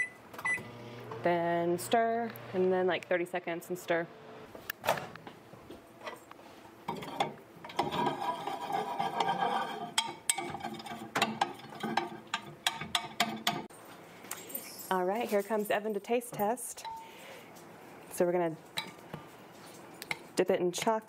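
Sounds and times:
microwave humming: 0.0 - 2.9.

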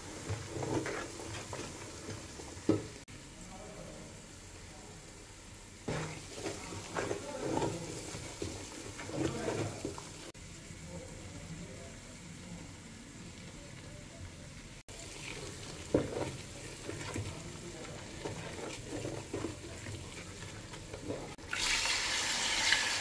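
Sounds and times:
wooden spatula scraping and stirring: 0.0 - 3.1, 5.9 - 10.4, 14.9 - 21.8
stew sizzling in oil: 0.0 - 3.4, 4.1 - 23.0.

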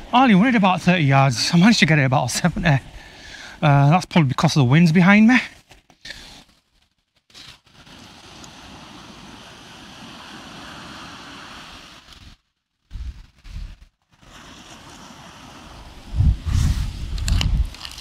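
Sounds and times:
surf on beach: 0.0 - 5.4, 7.3 - 18.0
strong wind: 7.8 - 18.0
wind buffeting microphone: 14.9 - 18.0.

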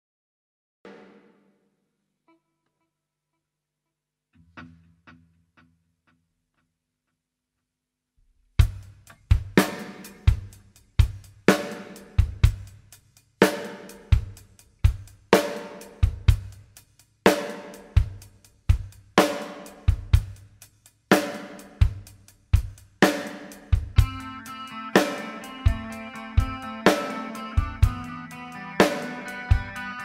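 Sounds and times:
drum kit heavy beat: 8.6 - 30.0
sustained instrumental chord: 24.0 - 30.0.

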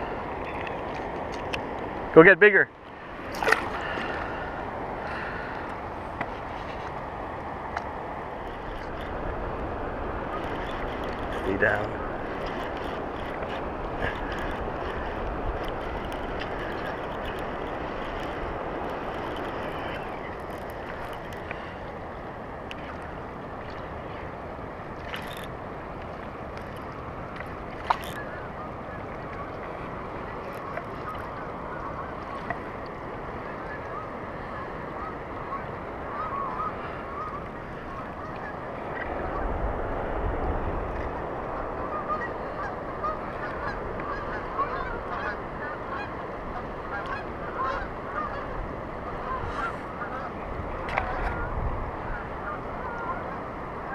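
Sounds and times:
choppy water: 0.0 - 53.9
wind: 0.0 - 53.9
geese honking: 41.6 - 50.4, 51.0 - 53.9.

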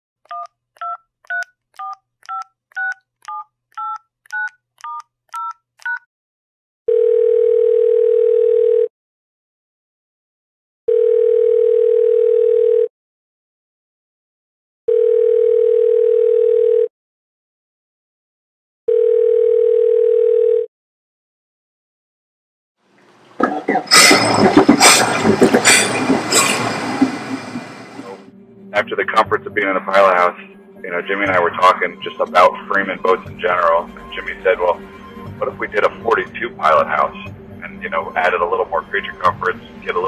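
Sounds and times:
keypad beeps: 0.3 - 6.0
phone ringing tone: 6.9 - 8.9, 10.9 - 12.9, 14.9 - 16.9, 18.9 - 20.7.

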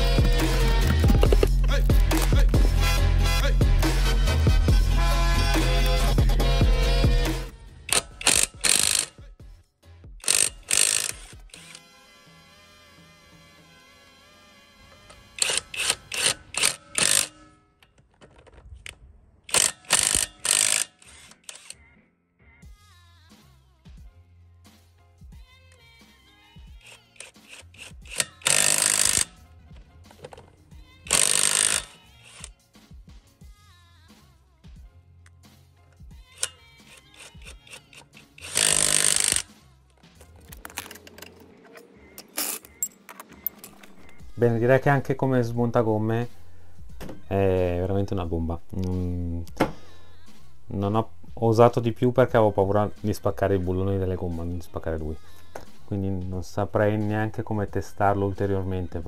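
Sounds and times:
impact wrench hammering: 7.9 - 9.2, 10.2 - 11.8, 15.4 - 17.8, 19.5 - 21.7, 26.8 - 29.4, 31.1 - 32.5, 36.4 - 39.5
metal socket clicks: 36.4 - 39.5, 40.2 - 44.2.

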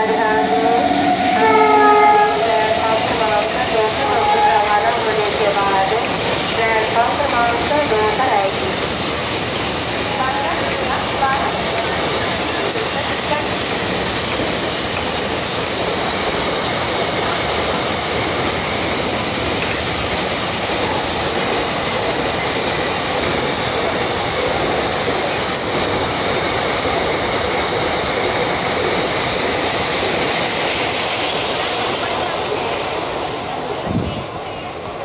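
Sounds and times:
high-pitched squeal: 0.0 - 5.5
train wheels clattering on rails: 0.0 - 35.0.

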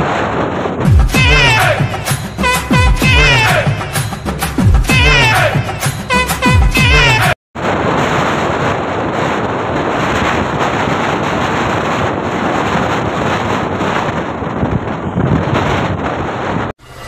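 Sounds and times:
wind rushing over microphone: 0.0 - 3.9, 7.6 - 17.0.

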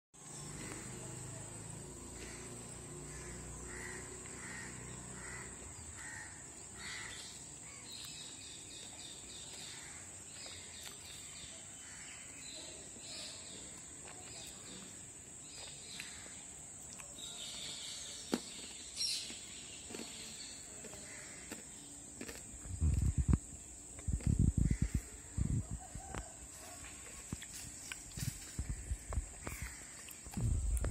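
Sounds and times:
birds calling: 2.1 - 16.6, 27.5 - 30.9.

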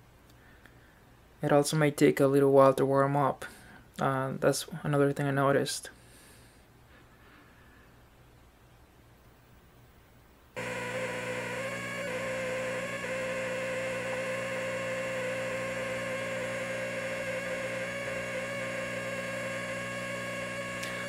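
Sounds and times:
high-pitched tv buzz: 10.6 - 21.0.

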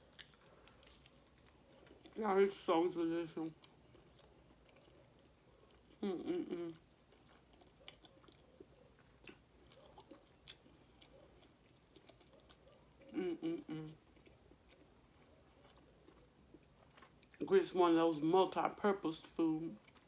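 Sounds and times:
chewing food: 0.0 - 17.8, 18.9 - 20.0
person humming: 6.0 - 6.8, 13.1 - 14.0.

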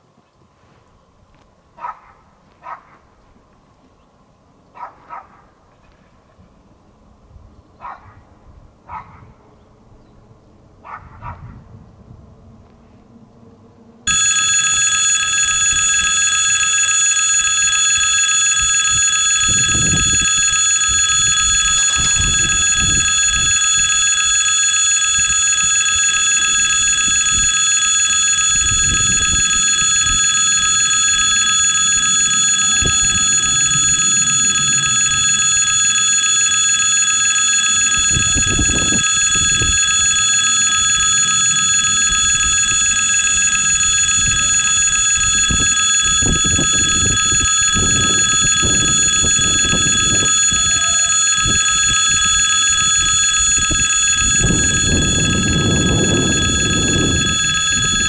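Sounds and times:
level crossing bell ringing: 14.1 - 52.8.

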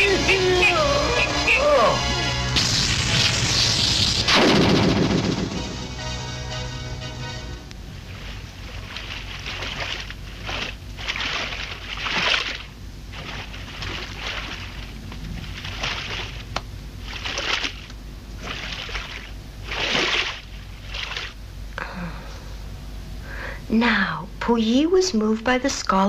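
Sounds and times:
pool water splashing: 7.3 - 21.4.

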